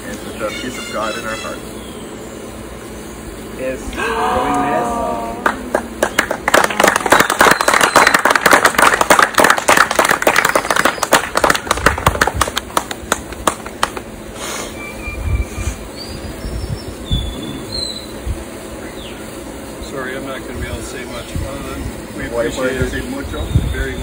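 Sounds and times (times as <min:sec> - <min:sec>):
small group clapping: 0:04.5 - 0:14.1.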